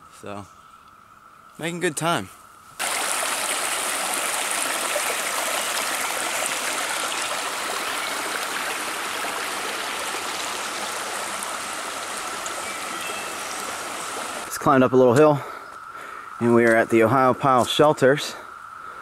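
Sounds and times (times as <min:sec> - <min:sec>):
creek water rushing: 0:02.8 - 0:14.6.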